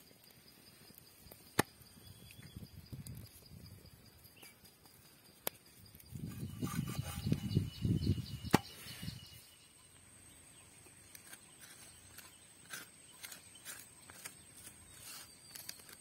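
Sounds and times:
knife scraping: 6.2s - 7.8s, 11.1s - 16.0s.

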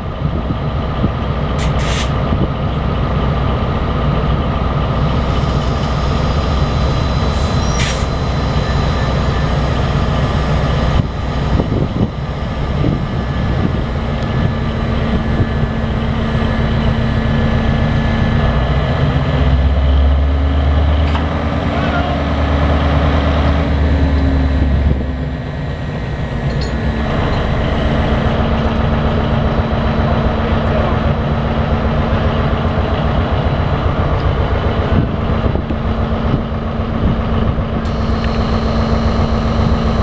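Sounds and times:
diesel locomotive engine running: 0.0s - 40.0s
high squeal: 5.2s - 10.6s.

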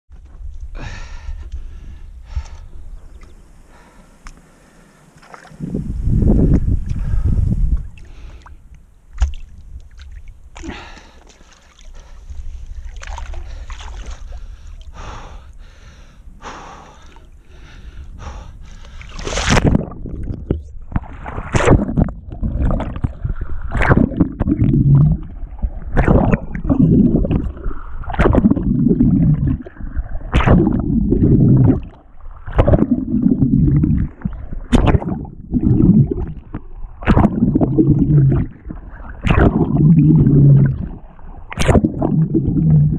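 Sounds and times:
swim-stroke splashes: 18.9s - 19.8s
muffled underwater gurgling: 19.5s - 42.9s.

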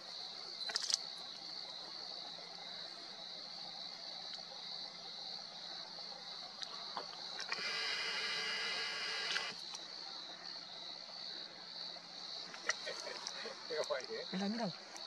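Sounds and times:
high-pitched insect song: 0.0s - 15.0s.

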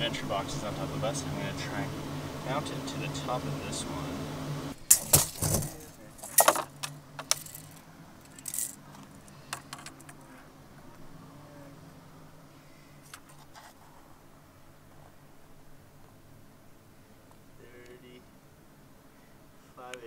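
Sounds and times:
tape measure metallic rattling: 4.9s - 8.8s.

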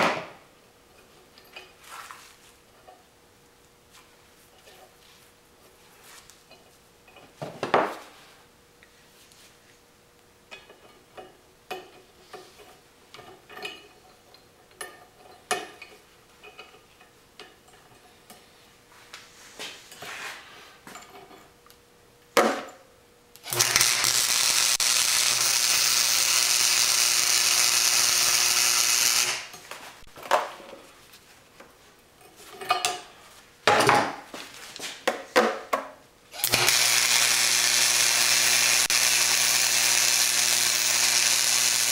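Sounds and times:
welder arc hissing: 23.4s - 29.6s, 36.4s - 41.9s.

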